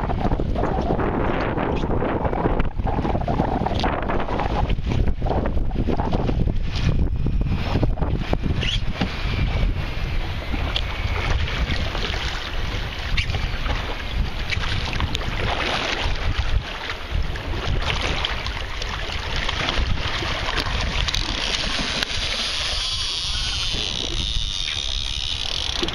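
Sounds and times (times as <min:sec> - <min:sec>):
water sloshing beside boat: 0:00.0 - 0:25.9
wind rumbling on microphone: 0:00.0 - 0:25.9
shark thrashing and splashing: 0:10.7 - 0:25.9.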